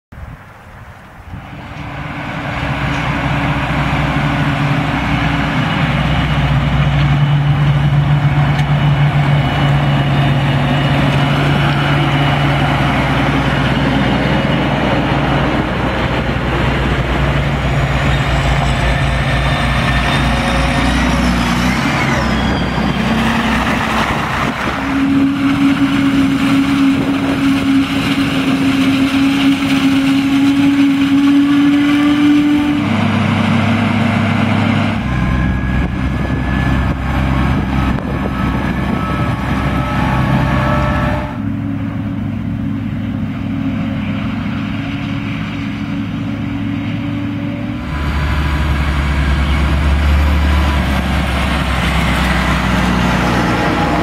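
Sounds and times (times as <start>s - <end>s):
tractor engine running: 1.0s - 31.1s, 32.8s - 40.6s, 41.5s - 54.0s
forage harvester droning: 1.0s - 54.0s.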